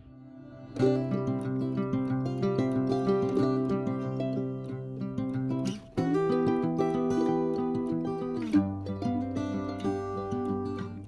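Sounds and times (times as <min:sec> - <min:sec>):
plucked acoustic guitar music: 0:00.0 - 0:11.0.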